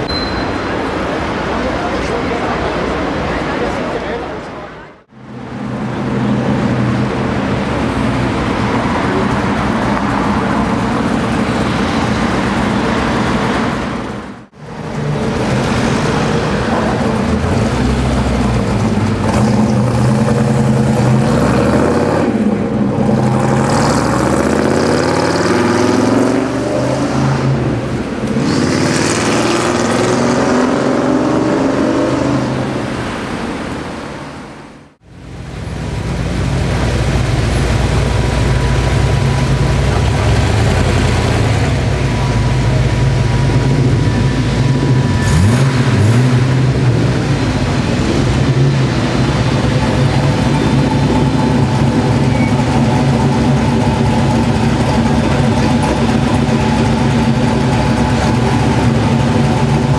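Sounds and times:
car engine running nearby: 0:00.0 - 0:59.9
car engines revving: 0:00.0 - 0:59.9.

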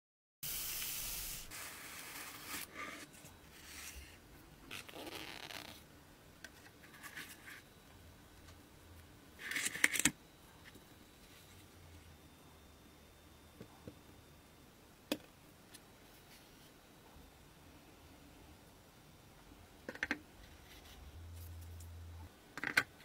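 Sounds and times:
packaging rubbing and scraping: 0:00.6 - 0:05.8.

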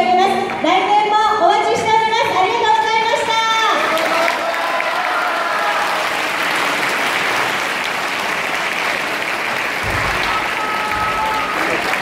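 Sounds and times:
audience applauding: 0:03.6 - 0:12.0.

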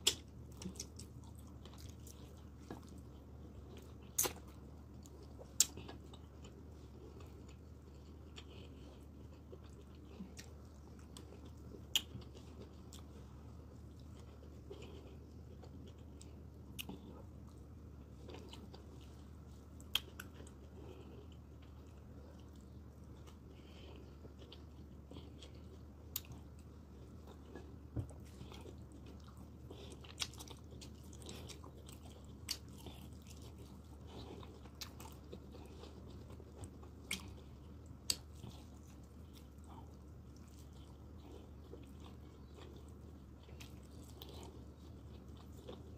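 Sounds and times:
person chewing with wet mouth noises: 0:00.0 - 0:45.9.

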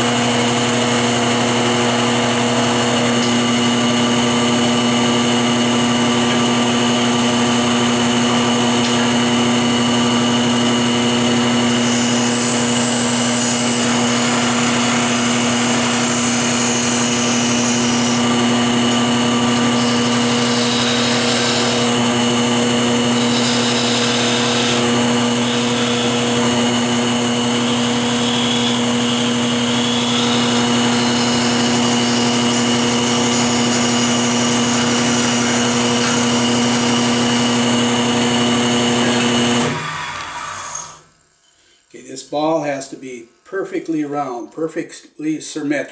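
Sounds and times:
wood lathe motor hum: 0:00.0 - 0:41.2
turning tool shaving hiss: 0:11.7 - 0:18.4, 0:19.3 - 0:22.1, 0:23.0 - 0:26.5, 0:27.6 - 0:37.6.

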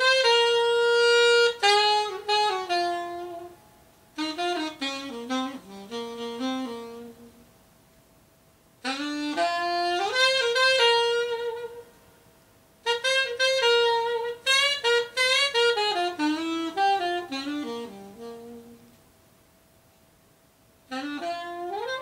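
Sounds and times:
solo saxophone: 0:00.0 - 0:07.8, 0:08.8 - 0:19.2, 0:20.7 - 0:22.0.

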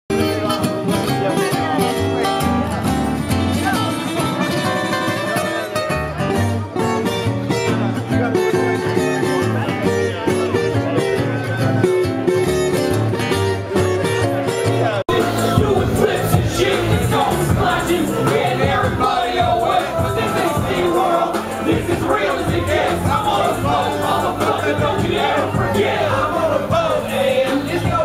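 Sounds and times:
acoustic guitars: 0:00.1 - 0:28.0
plucked upright bass: 0:05.8 - 0:28.0.

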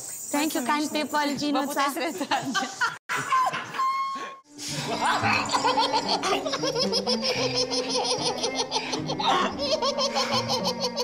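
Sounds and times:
group of people laughing: 0:02.1 - 0:03.8, 0:04.6 - 0:11.0
background music: 0:04.5 - 0:11.0.

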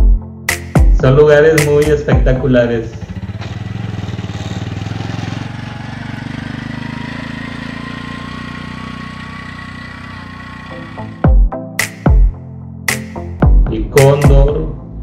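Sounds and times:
small engine puttering: 0:02.9 - 0:11.2.

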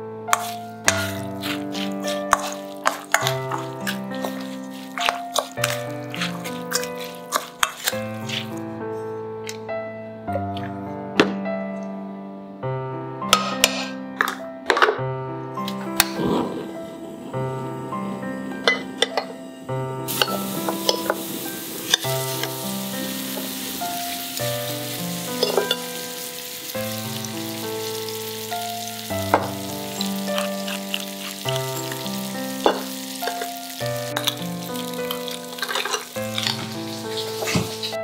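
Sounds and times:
background music: 0:00.0 - 0:38.0
meat frying in a pan: 0:00.3 - 0:08.6, 0:20.0 - 0:38.0.

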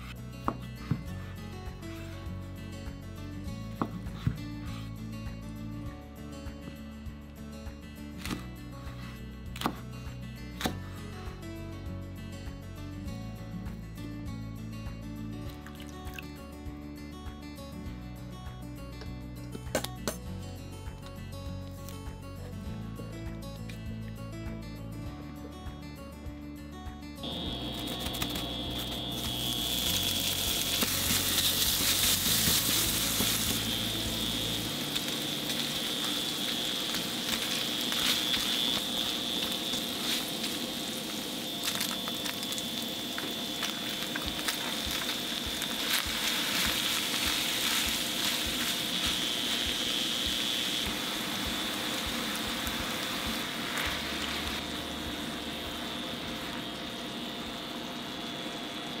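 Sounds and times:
meat sizzling in hot oil: 0:27.3 - 0:59.0.

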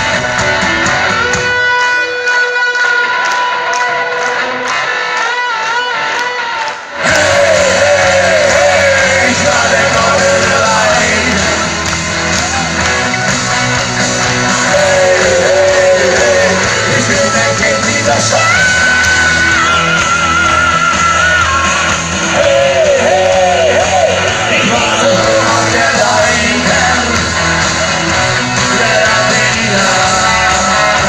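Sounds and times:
live rock band: 0:00.0 - 0:31.0
man singing and shouting: 0:07.0 - 0:11.8, 0:14.5 - 0:31.0.

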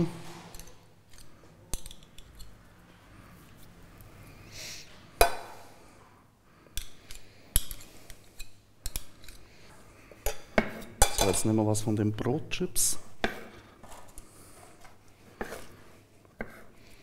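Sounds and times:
soft spoon scrape: 0:13.2 - 0:17.0.

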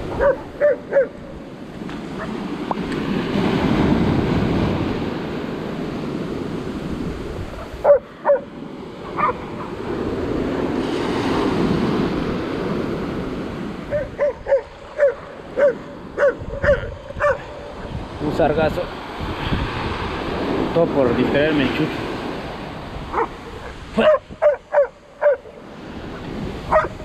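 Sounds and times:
surf washing on beach: 0:00.0 - 0:27.0
dog barking: 0:00.1 - 0:01.3, 0:02.1 - 0:02.4, 0:07.6 - 0:08.5, 0:09.1 - 0:09.8, 0:13.9 - 0:17.8, 0:23.1 - 0:25.6, 0:26.7 - 0:27.0.

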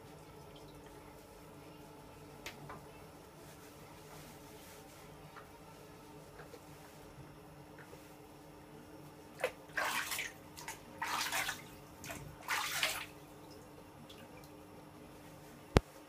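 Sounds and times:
water splashing in bathtub: 0:00.0 - 0:01.5, 0:09.3 - 0:14.6.

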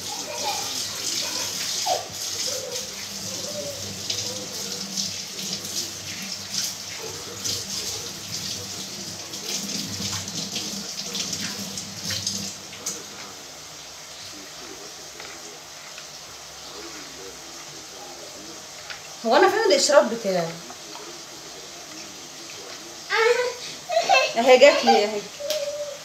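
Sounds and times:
water splashing: 0:00.0 - 0:13.4.

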